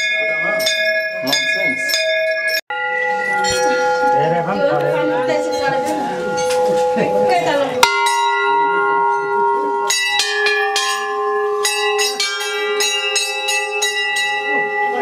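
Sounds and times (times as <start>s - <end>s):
temple bells ringing: 0.0s - 15.0s
voices: 3.2s - 10.1s.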